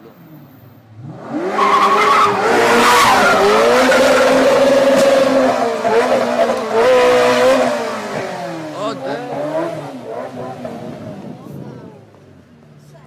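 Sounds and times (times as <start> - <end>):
sports car engine revving: 0.8 - 12.8.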